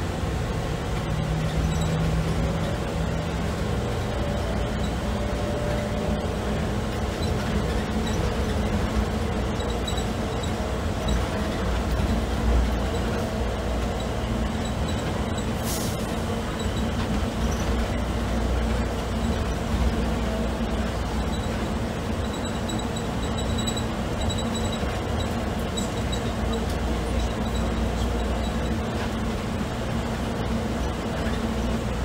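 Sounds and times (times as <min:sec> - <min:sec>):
train rumbling on guideway: 0:00.0 - 0:32.0
brief hiss: 0:15.6 - 0:16.1.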